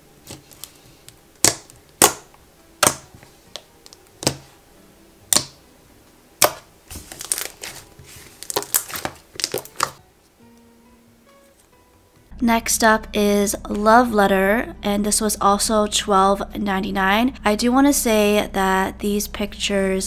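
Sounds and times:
slime crackling and squishing: 6.4 - 10.0
slime bubbles popping: 8.4 - 10.0.

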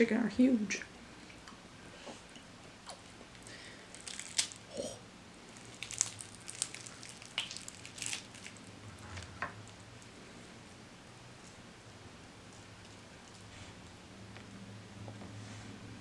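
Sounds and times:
meat squishing: 2.9 - 4.7, 5.4 - 9.8
fried chicken crust crackling: 3.3 - 4.7, 5.4 - 8.8.

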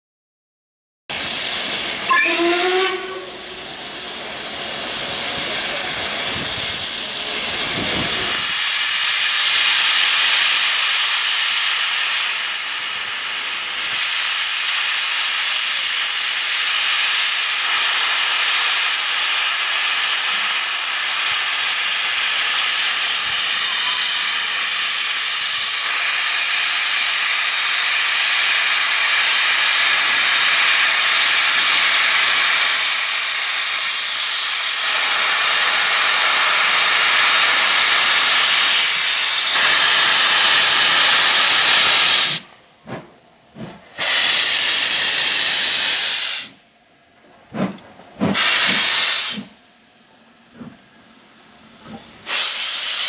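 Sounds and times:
locomotive letting off steam: 1.1 - 46.6, 47.4 - 49.6, 50.5 - 53.0
train whistle: 2.0 - 3.6.

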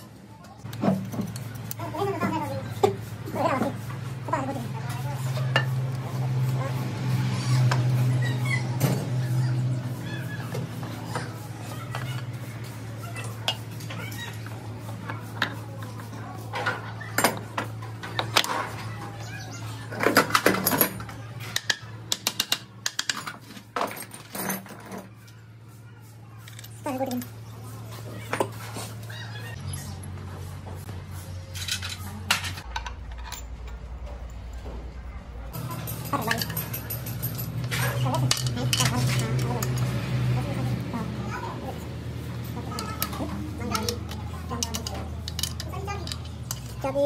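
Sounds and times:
metal parts clinking: 20.0 - 25.1, 31.5 - 34.0, 35.6 - 40.0, 42.6 - 47.0.

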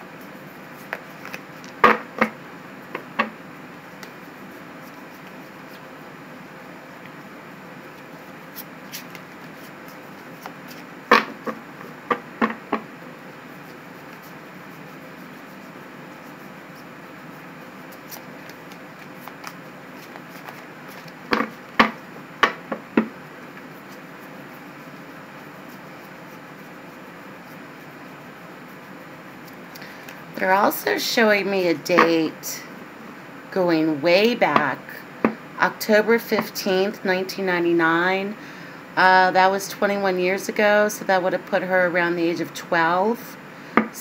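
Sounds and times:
cards being shuffled: 0.7 - 2.3, 8.0 - 12.6, 17.9 - 22.0.

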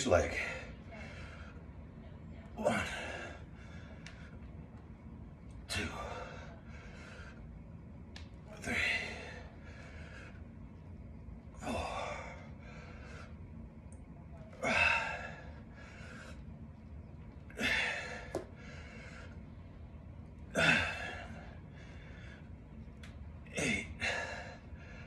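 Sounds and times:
man breathing hard: 5.6 - 7.6, 8.5 - 10.8, 11.6 - 13.6, 14.6 - 16.5, 17.5 - 19.6, 20.5 - 22.6, 23.5 - 25.0.

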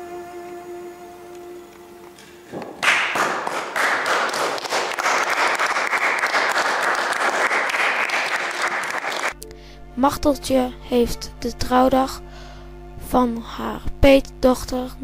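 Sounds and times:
music: 0.0 - 2.6, 7.1 - 15.0
people applauding: 2.6 - 9.4.

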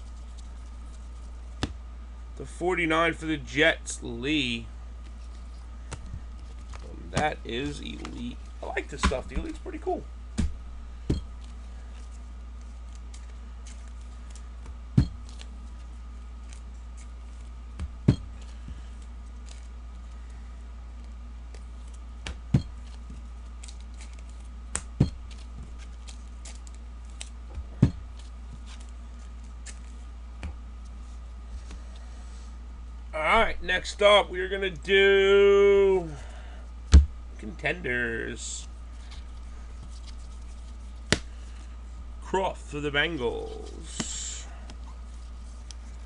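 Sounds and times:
steady low hum: 0.0 - 46.0
cards clicking and tapping: 21.0 - 30.6, 39.8 - 41.3.

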